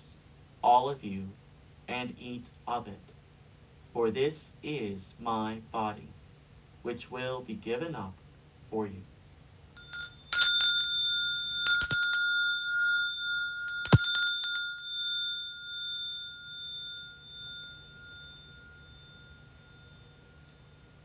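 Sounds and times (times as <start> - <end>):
altar bells ringing: 9.8 - 21.0.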